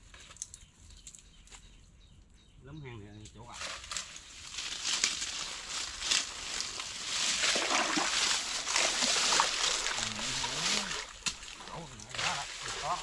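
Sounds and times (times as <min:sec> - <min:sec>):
splashing in shallow water: 0:05.0 - 0:13.0.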